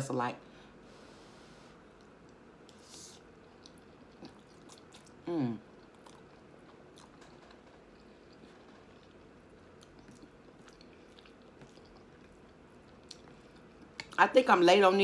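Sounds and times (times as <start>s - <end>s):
person chewing: 1.9s - 14.2s.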